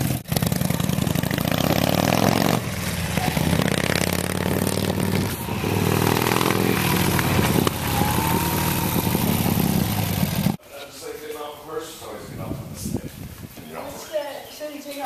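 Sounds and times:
motorcycle engine revving: 0.0s - 10.6s.

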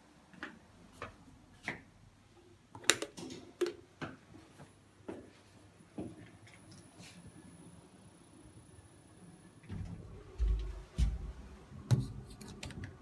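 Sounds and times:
footsteps on hard floor: 10.4s - 12.2s.

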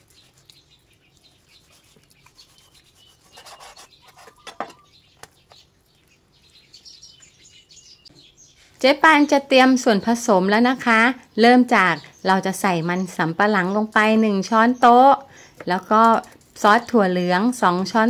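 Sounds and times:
knife scraping through meat: 0.0s - 4.8s.

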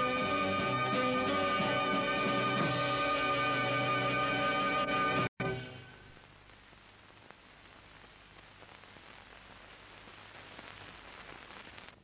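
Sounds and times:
film hiss with crackles: 0.0s - 12.0s.

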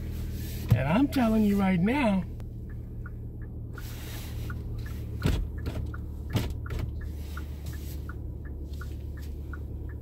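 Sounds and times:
car cabin hum: 0.0s - 10.0s
faint ticking: 2.4s - 10.0s.

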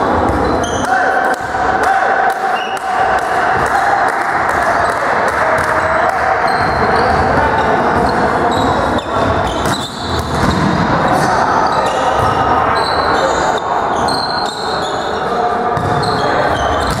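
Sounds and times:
players chatting: 0.0s - 17.0s
volleyball hits: 0.1s - 11.3s.

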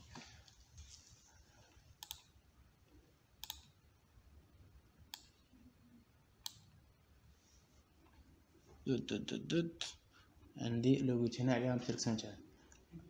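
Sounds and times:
computer mouse clicking: 2.0s - 2.4s, 3.4s - 3.8s, 5.1s - 5.4s, 6.4s - 6.7s.

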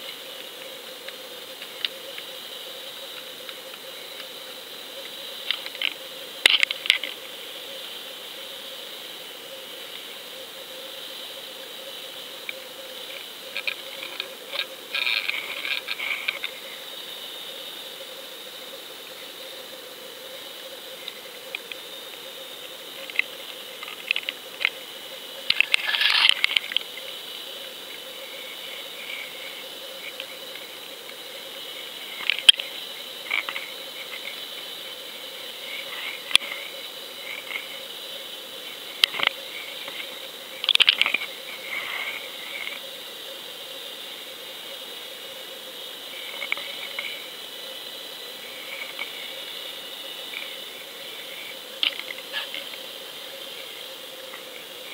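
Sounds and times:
steady high hum underwater: 0.0s - 54.9s
clicks and crackling: 5.0s - 7.2s, 23.0s - 24.8s, 25.4s - 27.1s, 39.0s - 41.3s.

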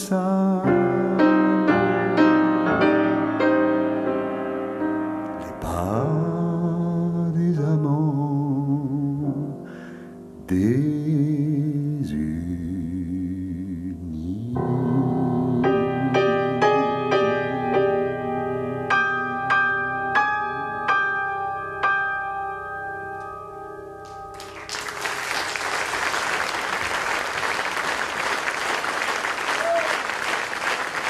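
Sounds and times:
grand piano playing: 0.0s - 27.7s
audience applause: 24.3s - 31.0s.

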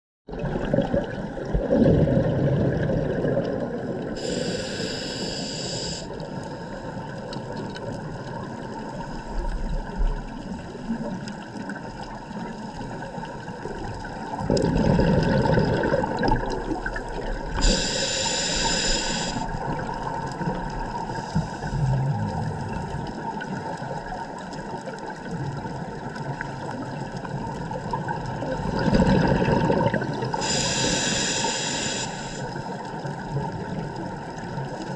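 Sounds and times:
exhaled bubbles underwater: 0.3s - 34.9s
hissing regulator inhalation: 4.2s - 6.6s, 17.5s - 19.6s, 21.1s - 21.9s, 30.3s - 32.6s.

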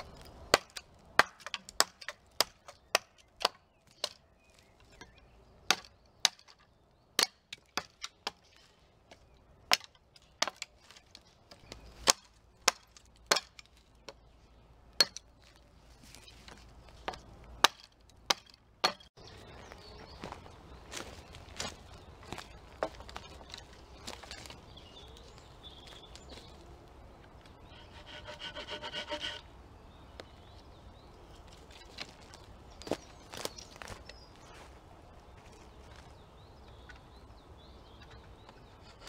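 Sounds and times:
hatchet chopping wooden pole: 0.0s - 4.3s, 5.0s - 6.6s, 7.2s - 8.4s, 9.7s - 14.2s, 15.0s - 15.3s, 16.5s - 19.2s.

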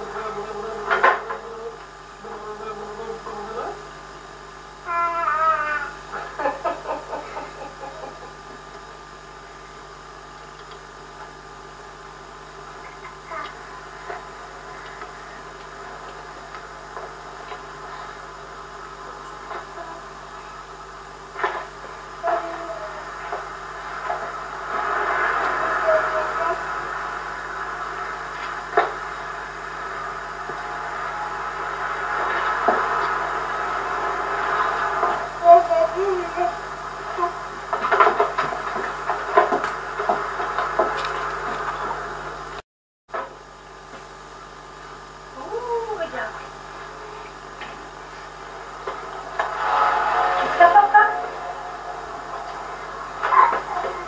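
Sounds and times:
steady background hum: 0.0s - 42.6s, 43.2s - 54.0s
toddler babbling: 4.9s - 6.0s, 12.8s - 13.7s
toddler squealing: 4.9s - 6.0s.

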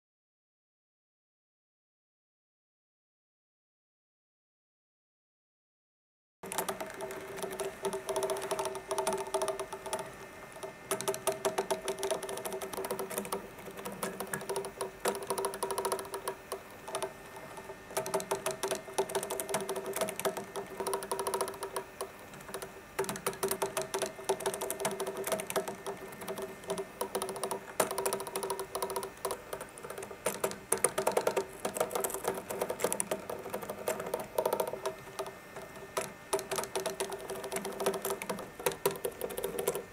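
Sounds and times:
legs tapping on wooden tabletop: 6.4s - 39.9s
motor humming: 6.4s - 39.9s.

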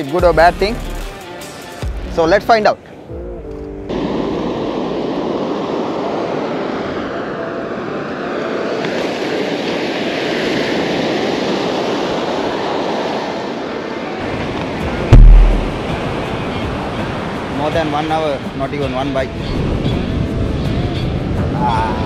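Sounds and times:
ocean surf breaking on beach: 3.9s - 17.6s.

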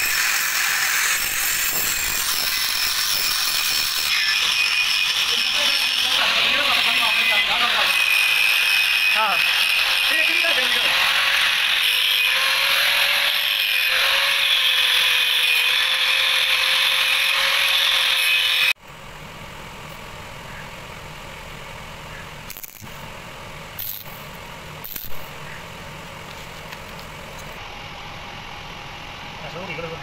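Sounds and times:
welding arc crackles: 0.0s - 7.6s, 22.4s - 23.0s, 23.8s - 25.6s
angle grinder cutting steel pipe: 0.0s - 18.8s, 22.5s - 22.9s, 23.8s - 25.6s.

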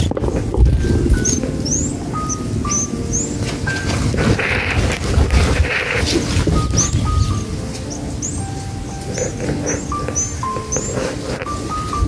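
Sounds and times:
low rumble with knocks: 0.0s - 1.7s
nestlings begging: 0.0s - 12.0s.

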